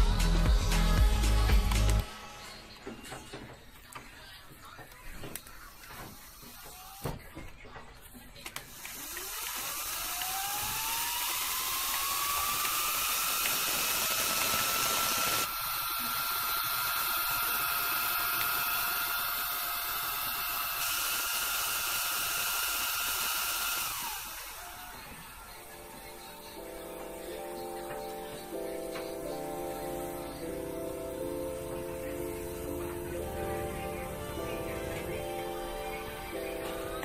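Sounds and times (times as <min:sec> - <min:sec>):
small electric motor whine: 0:08.7 - 0:37.0.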